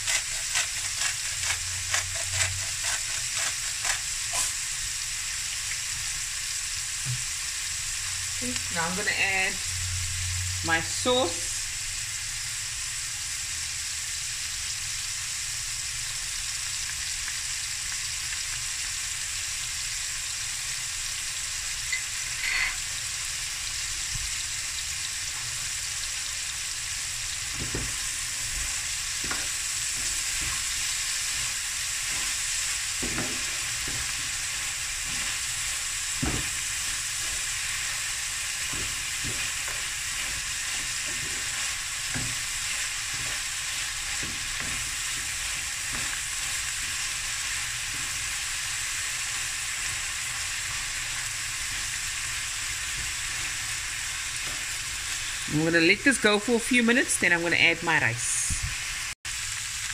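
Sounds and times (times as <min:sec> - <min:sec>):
wooden spoon scraping pan: 0:00.0 - 0:04.6, 0:27.5 - 0:37.8, 0:38.6 - 0:47.0
sausage and onion sizzling in pan: 0:00.0 - 0:59.9.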